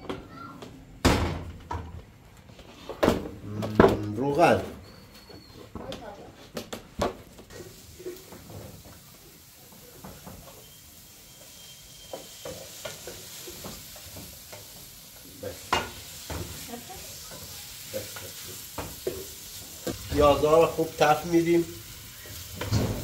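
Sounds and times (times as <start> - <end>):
onions sizzling in oil: 7.5 - 23.0.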